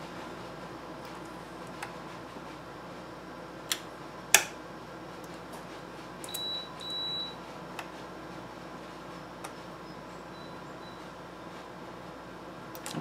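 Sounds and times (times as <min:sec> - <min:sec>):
multimeter continuity beeps: 0:06.2 - 0:07.4, 0:09.8 - 0:11.1.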